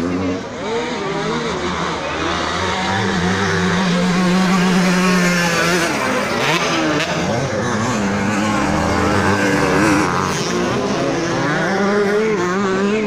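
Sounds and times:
motocross bikes racing: 0.0 - 13.0.

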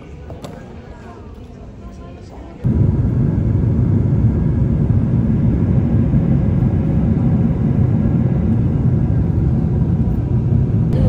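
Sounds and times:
jet cabin engine and airflow rumble: 2.6 - 11.0.

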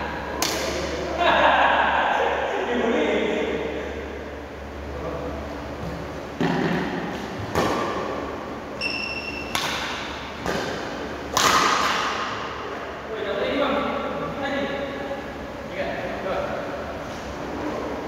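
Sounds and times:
rackets hitting shuttlecock: 0.4 - 1.0, 6.4 - 8.2, 8.8 - 12.9.

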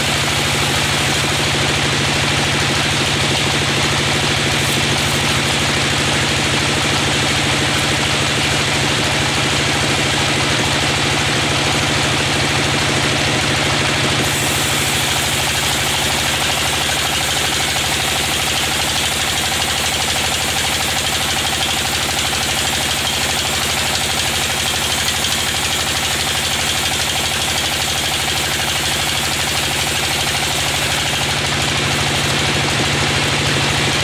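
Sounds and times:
band saw cutting log: 0.0 - 34.0.

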